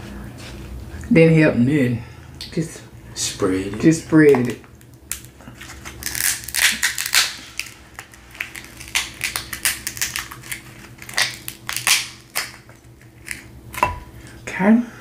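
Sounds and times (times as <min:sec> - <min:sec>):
crab shell cracking and crunching: 0:04.3 - 0:14.0.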